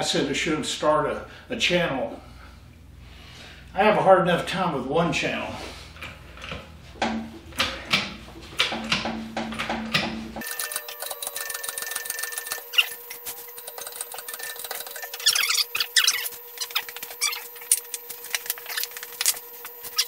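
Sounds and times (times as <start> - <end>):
short squeaks: 12.7 - 13.1, 14.2 - 17.8.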